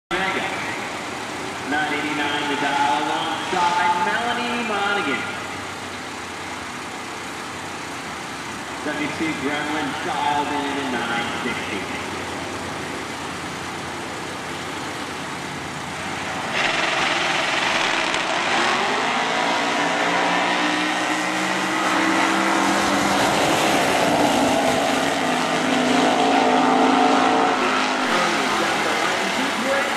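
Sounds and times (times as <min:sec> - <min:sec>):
drag racing car engines: 0:00.1 - 0:29.9.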